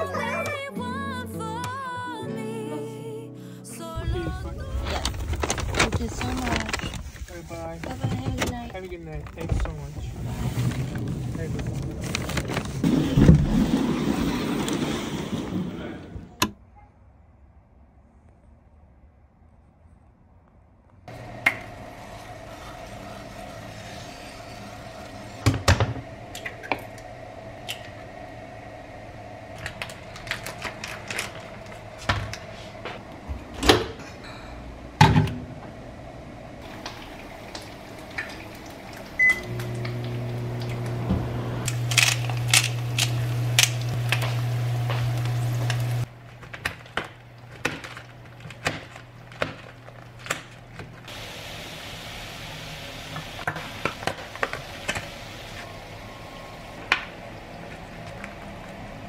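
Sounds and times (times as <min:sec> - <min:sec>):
microwave humming: 0:00.0 - 0:02.1, 0:21.1 - 0:59.0.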